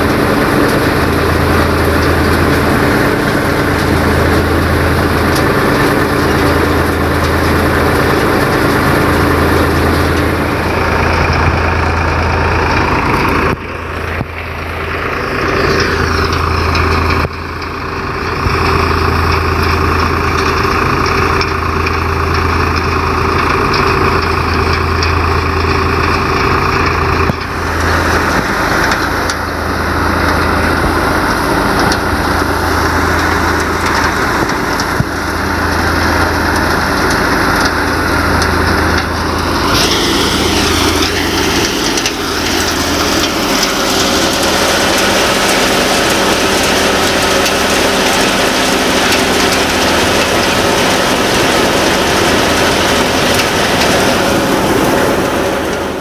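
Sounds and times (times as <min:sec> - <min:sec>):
diesel tractor running: 0:00.0 - 0:56.0
threshing machine rushing: 0:00.0 - 0:56.0.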